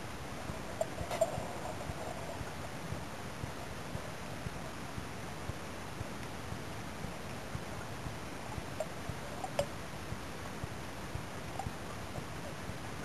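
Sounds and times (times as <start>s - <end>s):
small clicks and ticks: 0.4s - 4.8s, 5.5s - 9.8s, 10.6s - 12.7s.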